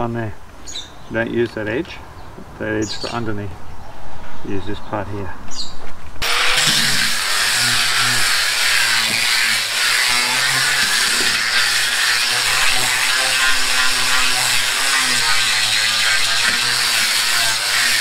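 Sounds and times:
angle grinder sanding timber: 6.2 - 18.0.

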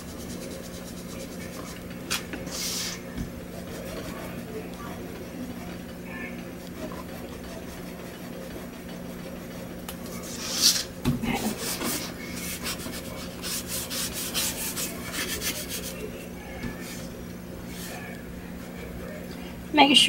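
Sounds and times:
cloth wiping book cover: 2.4 - 3.0.

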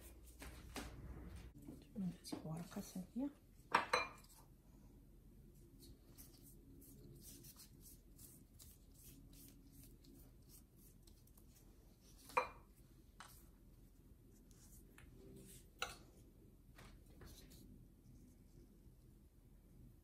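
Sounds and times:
pastry brush strokes: 5.5 - 19.0.

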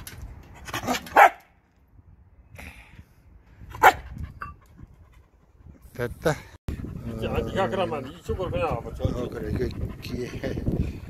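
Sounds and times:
dog barking: 1.1 - 1.4.

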